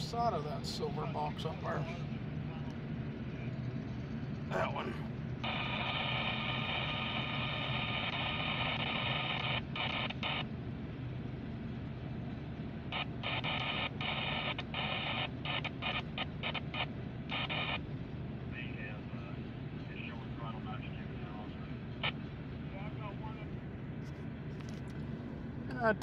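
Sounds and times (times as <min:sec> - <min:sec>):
low steady rumble: 0:00.0 - 0:26.0
radio static buzzing: 0:05.4 - 0:10.5, 0:12.9 - 0:17.9.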